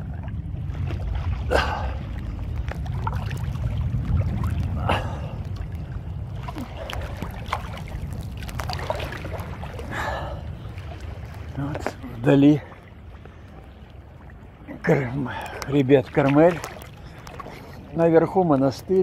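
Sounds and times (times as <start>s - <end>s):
wind on microphone: 0.0s - 12.3s
water sloshing and splashing: 0.0s - 19.0s
waves rumbling: 0.0s - 19.0s.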